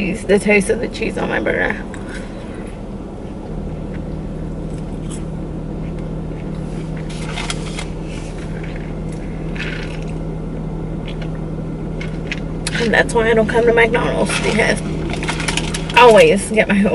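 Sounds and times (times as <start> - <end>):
idling car hum: 0.0 - 16.9
eating and paper cup rustling: 4.6 - 10.2, 12.0 - 16.3.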